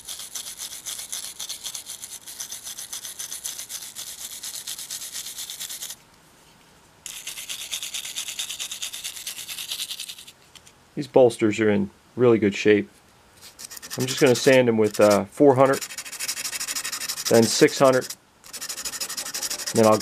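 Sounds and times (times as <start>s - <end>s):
wire brush scratching metal: 13.4s - 20.0s.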